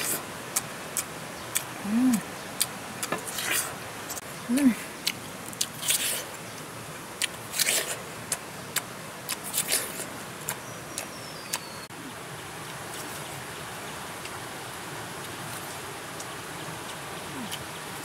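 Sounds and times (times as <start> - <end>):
forest background hiss: 0.0 - 18.0
person crunching food: 7.2 - 8.0.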